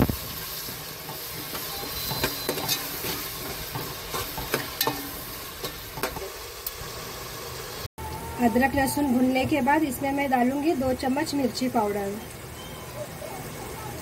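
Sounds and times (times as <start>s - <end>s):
masala sizzling in hot oil: 0.0s - 14.0s
spatula scraping a metal pot: 0.7s - 6.2s.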